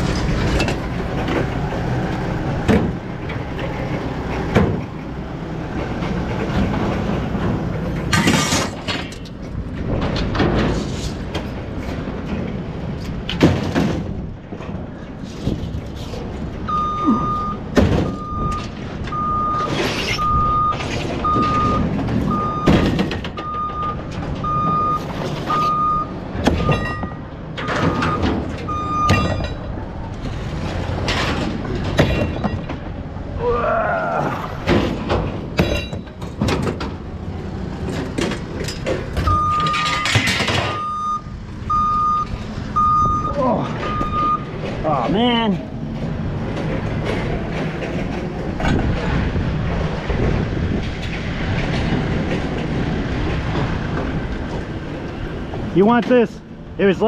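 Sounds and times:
scrap metal clanking and thudding: 0:00.0 - 0:33.1, 0:34.6 - 0:41.0, 0:43.6 - 0:55.7
vehicle reversing alarm beeping: 0:16.6 - 0:29.7, 0:39.2 - 0:44.6.

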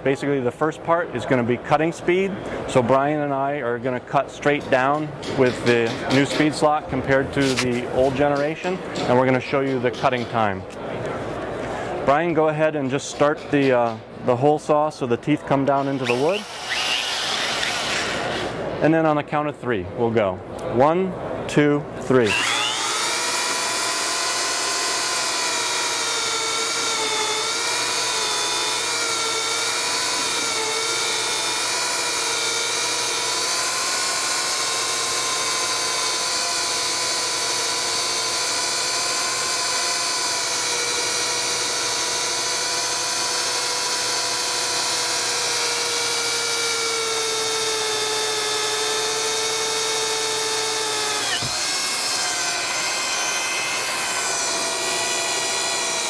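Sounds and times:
power drills cutting wood: 0:15.7 - 0:18.6, 0:22.2 - 0:56.0.

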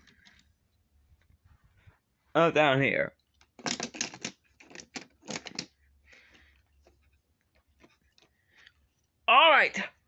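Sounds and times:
toy cars clicking on plastic track: 0:03.6 - 0:05.7.

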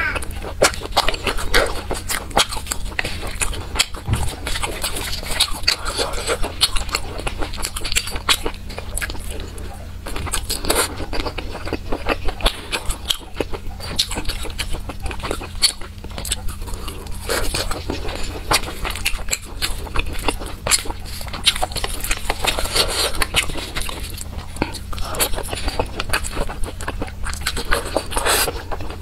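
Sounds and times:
wet chewing smacks: 0:00.2 - 0:29.0.

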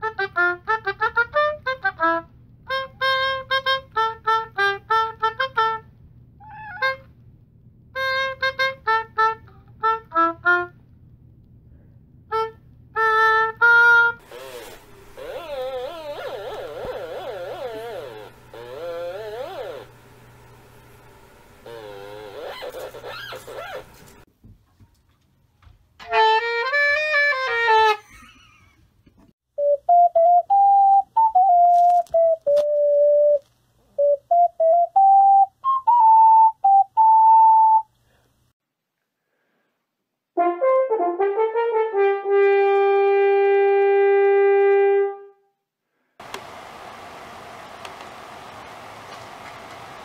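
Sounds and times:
brass-like wind instrument: 0:00.0 - 0:06.0, 0:08.0 - 0:10.8, 0:12.3 - 0:20.0, 0:26.0 - 0:28.0, 0:40.4 - 0:45.6.

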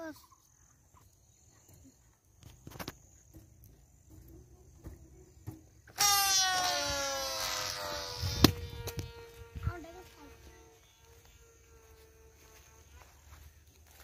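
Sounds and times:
high insect trill: 0:05.4 - 0:14.0
balloon air squealing: 0:05.9 - 0:09.4.

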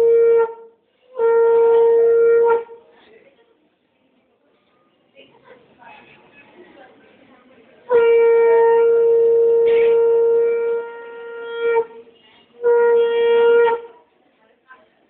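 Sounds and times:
conch shell blasts: 0:00.0 - 0:02.8, 0:07.9 - 0:12.0, 0:12.6 - 0:13.9.

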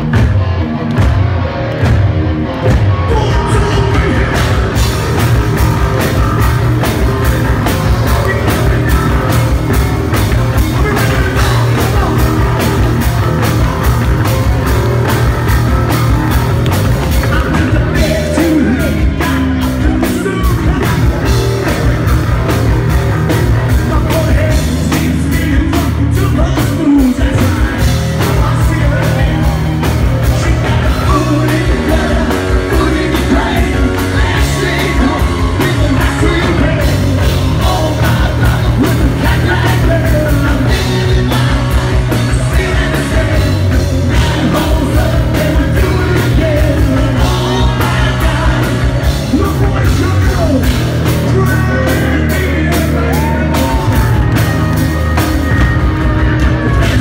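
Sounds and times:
drums: 0:00.0 - 0:57.0
electric guitars: 0:00.0 - 0:57.0
lead singer singing: 0:02.7 - 0:57.0.

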